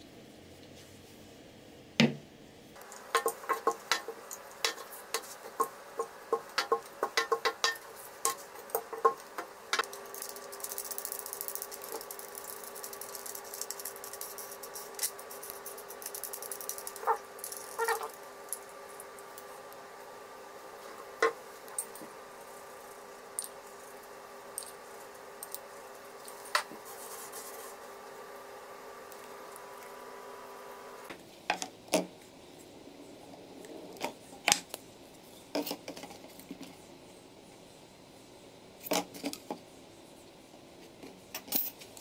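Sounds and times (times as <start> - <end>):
faint hum: 0.0 - 42.0
clicks and taps: 2.9 - 9.9.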